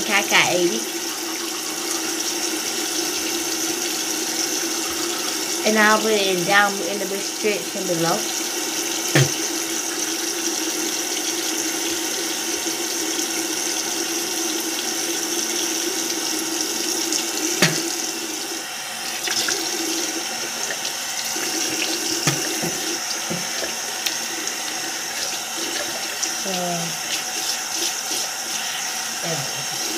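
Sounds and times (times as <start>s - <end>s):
tap running into sink: 9.0s - 9.6s, 17.4s - 18.1s, 20.6s - 26.4s.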